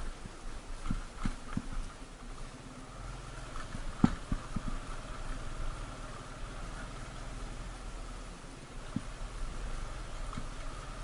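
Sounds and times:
motorcycle engine at low revs: 0.0 - 11.0.

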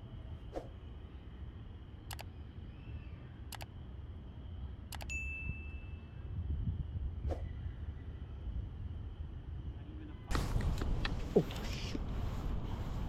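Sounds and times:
mouse clicks: 2.1 - 2.3.

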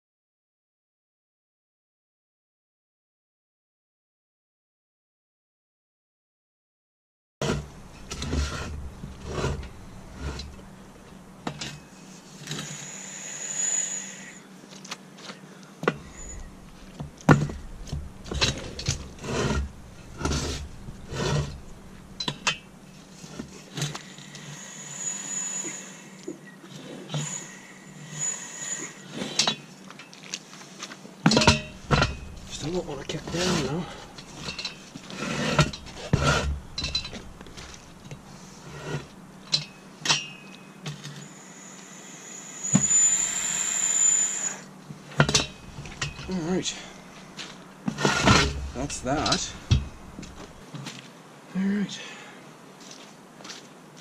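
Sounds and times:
knocks and clunks of tire on wheel: 16.6 - 22.6, 49.4 - 50.6.

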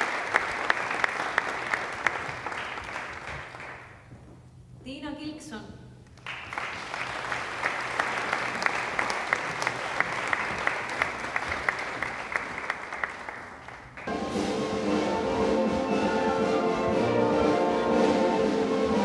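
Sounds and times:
audience applauding: 0.0 - 4.0, 6.1 - 14.1.

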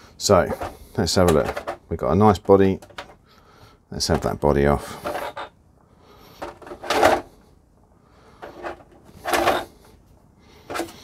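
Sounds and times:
plastic rattles and clicks: 0.5 - 3.2, 6.4 - 7.3, 8.4 - 9.7.

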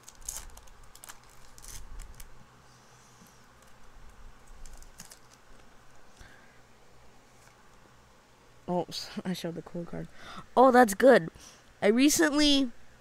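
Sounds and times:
foil wrapper crinkling: 0.0 - 2.4, 3.6 - 6.2.

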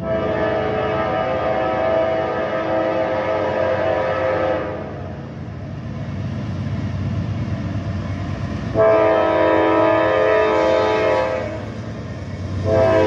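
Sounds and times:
locomotive air horn: 0.0 - 5.1, 8.7 - 11.7, 12.6 - 13.0
train rumbling: 0.0 - 13.0.

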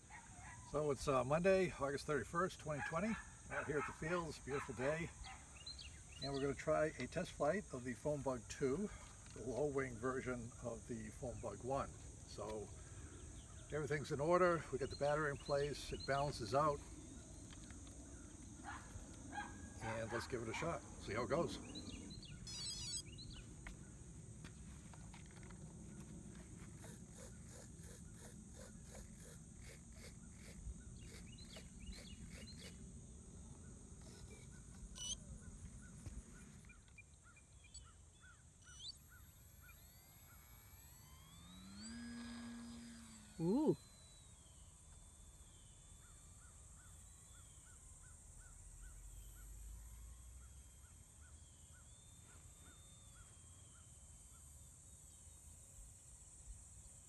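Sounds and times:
insects buzzing and chirping: 0.0 - 57.0
electric motor whining: 12.4 - 23.4, 24.4 - 37.8, 38.4 - 47.6, 49.1 - 54.6.

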